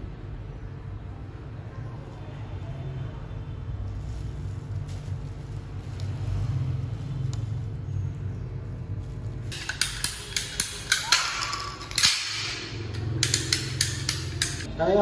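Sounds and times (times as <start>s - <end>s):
pipe cutter snapping clicks: 9.6s - 14.7s.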